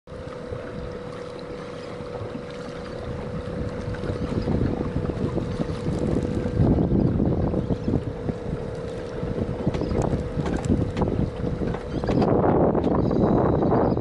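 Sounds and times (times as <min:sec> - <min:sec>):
steady low hum: 0:00.1 - 0:14.0
wind buffeting microphone: 0:00.1 - 0:14.0.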